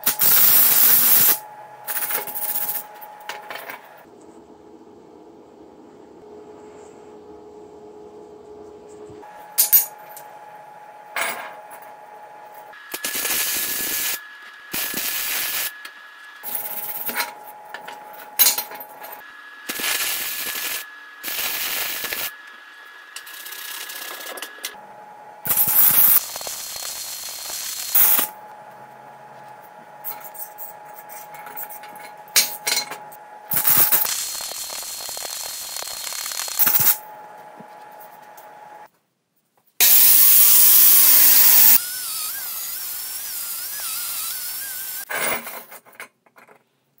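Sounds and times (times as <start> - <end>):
welding crackling and hissing: 0.0 - 2.9, 12.7 - 17.2, 19.6 - 24.7, 25.4 - 28.4, 33.5 - 37.1, 39.8 - 45.1.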